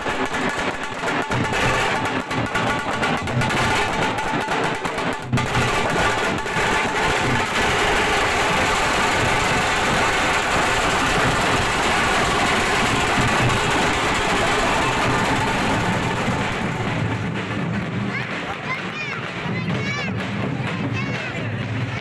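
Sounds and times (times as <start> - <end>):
barrel drums played with sticks: 0.0 - 22.0.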